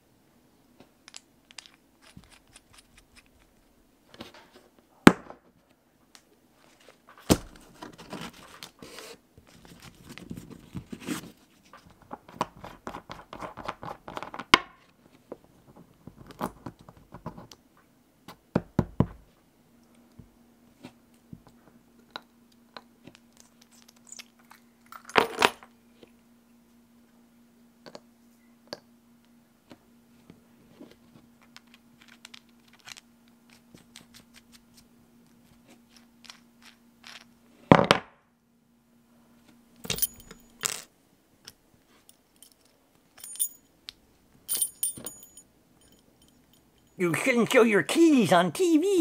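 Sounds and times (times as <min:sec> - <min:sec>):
faint steady hum: 0:00.0 - 0:49.0
metal pieces clicking down: 0:39.9 - 0:40.9.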